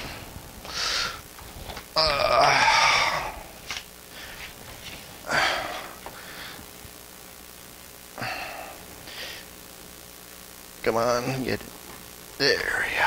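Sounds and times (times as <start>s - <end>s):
man groaning: 2.0s - 3.6s, 5.2s - 6.0s.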